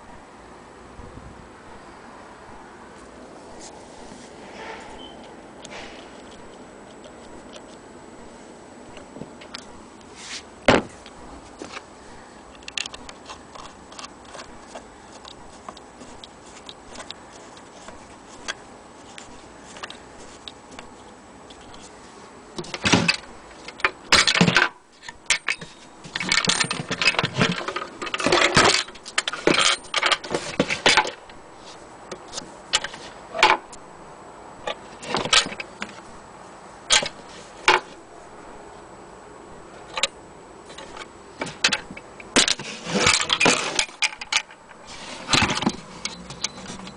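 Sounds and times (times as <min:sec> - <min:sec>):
wood and metal parts clattering: 0:12.5 - 0:21.9, 0:22.6 - 0:31.3, 0:34.7 - 0:36.1, 0:36.9 - 0:38.0, 0:39.8 - 0:46.9.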